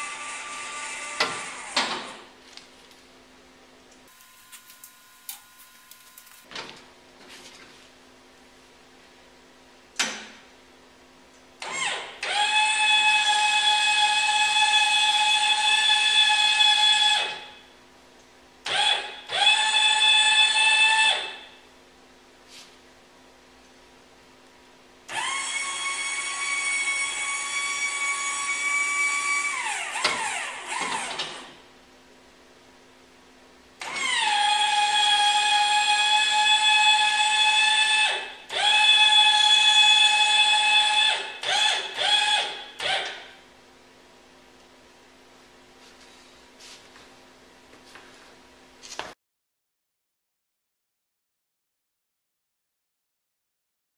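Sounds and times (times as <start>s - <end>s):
electric actuator motor whining: 25.1s - 31.4s.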